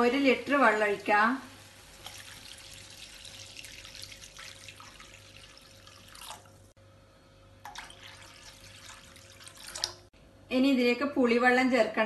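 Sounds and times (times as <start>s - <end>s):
water pouring into a pan: 1.8s - 6.8s, 7.6s - 10.1s.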